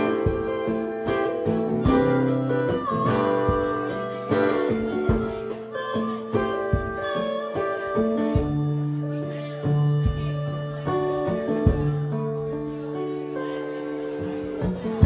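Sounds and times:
harmonica melody: 0.0 - 14.9
acoustic guitar strumming chords: 0.0 - 15.0.

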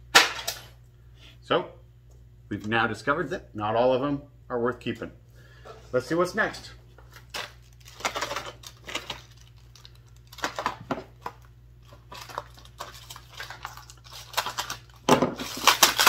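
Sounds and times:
packaging crinkling and tearing: 7.0 - 16.0.

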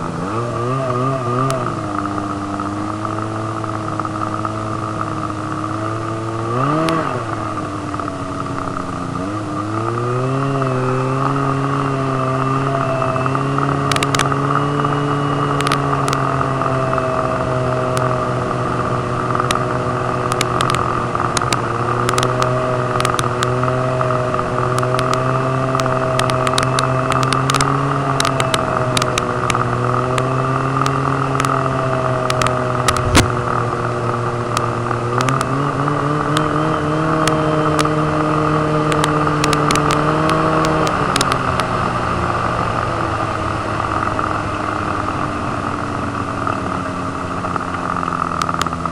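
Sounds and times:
snowmobile engine running: 0.0 - 48.9
sharp clicks: 13.8 - 14.4, 20.3 - 23.5, 24.8 - 29.6, 32.2 - 33.6, 38.9 - 41.7
sharp knock: 33.0 - 33.4.

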